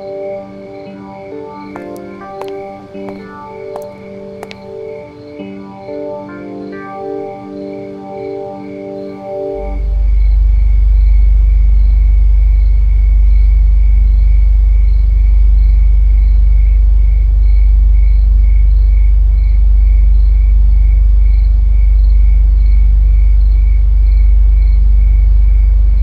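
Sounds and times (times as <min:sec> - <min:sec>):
high cricket-like chirp: 0:00.0 - 0:26.0
deep steady rumble: 0:09.7 - 0:26.0.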